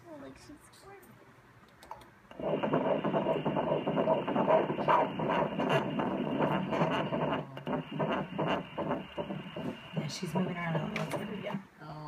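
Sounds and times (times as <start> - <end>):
doppler whooshing heartbeat pulse: 2.3 - 11.6.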